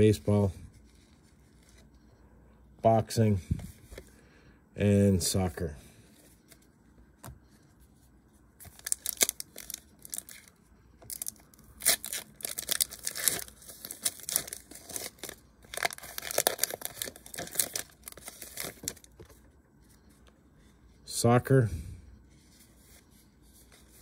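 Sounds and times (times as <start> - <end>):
foil wrapper tearing and crinkling: 8.7 - 19.1.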